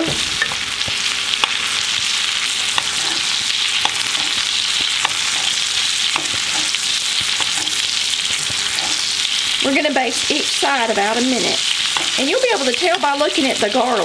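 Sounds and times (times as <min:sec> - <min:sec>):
steak sizzling in butter: 0:00.0 - 0:14.0.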